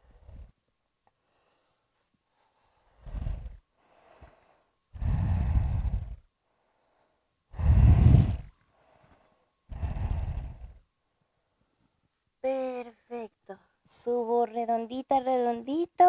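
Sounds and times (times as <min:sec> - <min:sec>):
woman breathing deeply: 0:00.0 - 0:00.6, 0:01.2 - 0:12.0.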